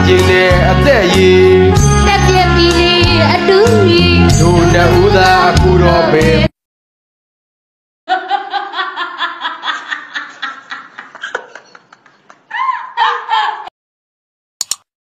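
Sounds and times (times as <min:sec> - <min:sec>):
woman laughing: 0:08.1 - 0:13.7
woman shrieking with laughter: 0:12.5 - 0:13.7.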